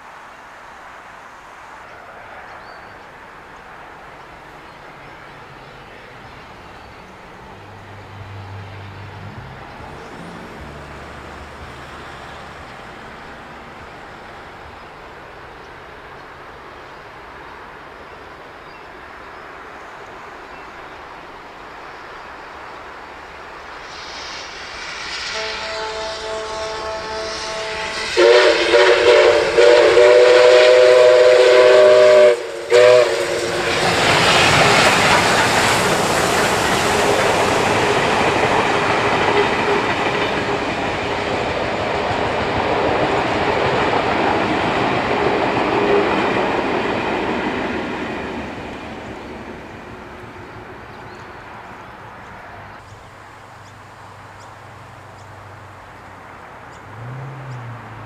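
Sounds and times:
steam locomotive whistle: 23.8s - 35.0s, 36.7s - 41.4s, 45.0s - 46.7s
train wheels clattering on rails: 23.8s - 50.3s.

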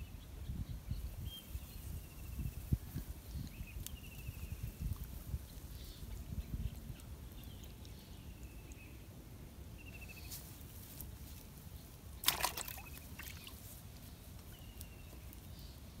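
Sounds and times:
faint chirping trills: 9.7s - 10.4s
water splash in plastic bucket: 12.2s - 13.6s.

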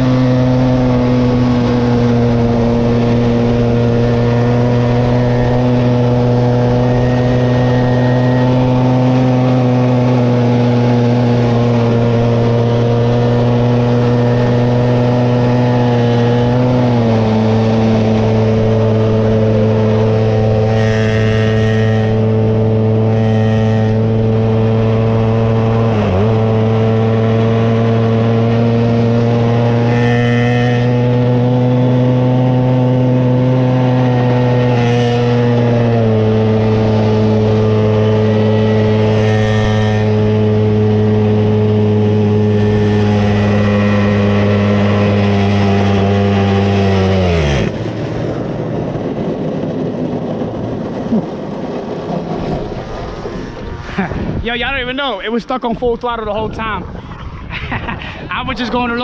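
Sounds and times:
small gasoline engine at full throttle: 0.0s - 55.0s.

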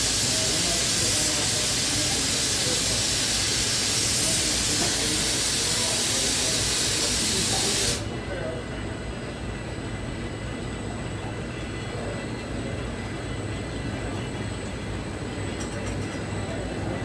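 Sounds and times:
steady air hiss: 0.0s - 8.1s
faint voices: 0.0s - 17.0s.

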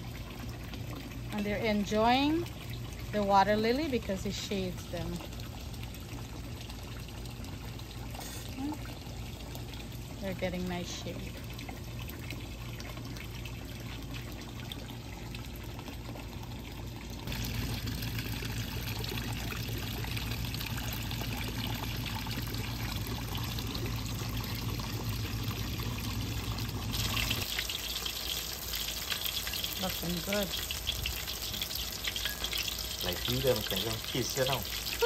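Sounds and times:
water splashing into a pond: 0.0s - 35.0s
fish sizzling in hot oil: 17.2s - 35.0s.

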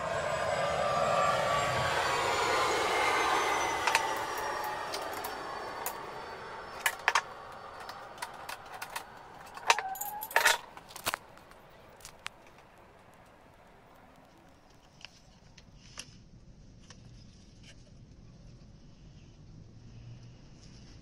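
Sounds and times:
whir falling in pitch: 0.0s - 9.6s
spanners clinking on wood: 3.6s - 12.2s.

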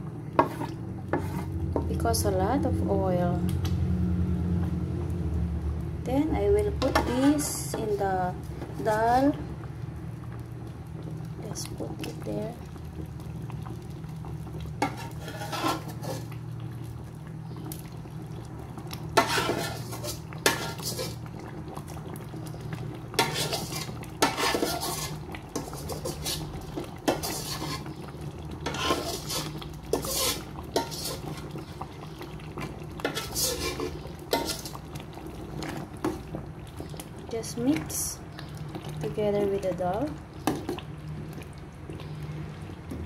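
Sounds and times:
spoon scraping metal pot: 0.4s - 1.5s, 6.8s - 8.0s, 14.8s - 16.3s, 19.2s - 21.2s, 23.2s - 28.0s, 28.6s - 31.5s, 33.0s - 34.8s.

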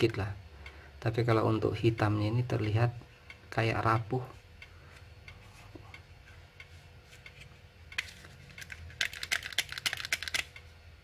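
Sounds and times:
toy pistol clicking and rattling: 8.0s - 10.6s.

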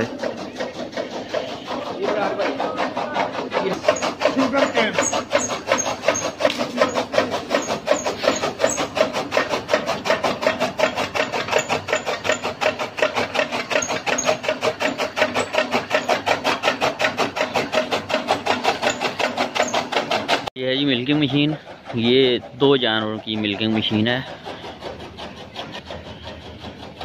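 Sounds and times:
chaff cutter blade clatter: 0.0s - 20.5s.

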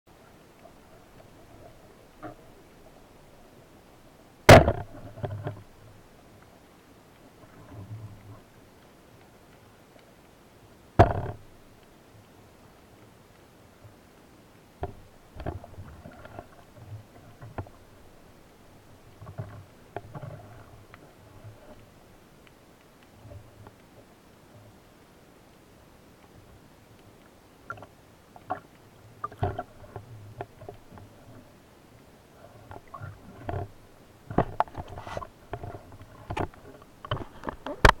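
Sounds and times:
muffled underwater water noise: 0.1s - 38.0s
speargun clicks and knocks underwater: 11.0s - 11.5s, 14.8s - 17.8s, 27.0s - 31.3s, 32.7s - 38.0s.

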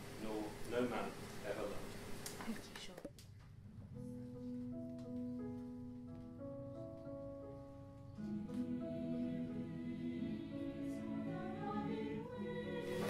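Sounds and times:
soft instrumental music: 3.5s - 13.0s.

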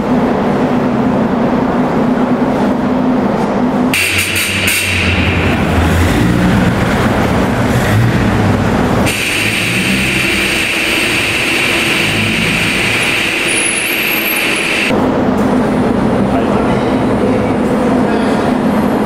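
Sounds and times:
car engine running: 4.0s - 17.6s.

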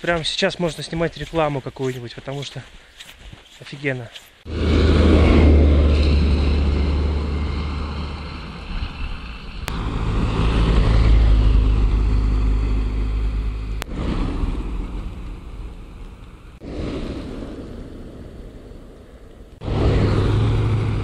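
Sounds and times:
van driving past on snow: 4.5s - 16.0s, 19.6s - 21.0s
car passing: 4.5s - 21.0s.

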